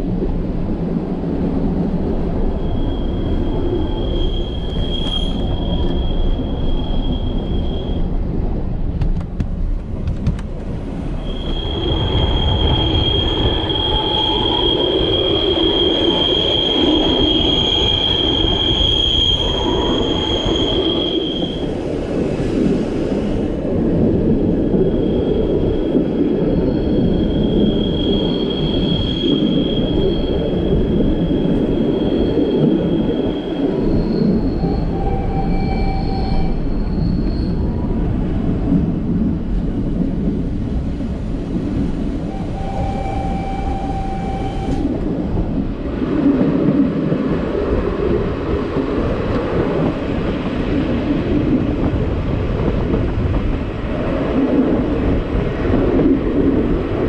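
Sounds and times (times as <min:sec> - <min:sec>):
train rumbling along track: 0:00.0 - 0:57.0
high wheel squeals: 0:02.6 - 0:08.2, 0:11.2 - 0:21.8, 0:24.9 - 0:37.8, 0:42.2 - 0:44.9.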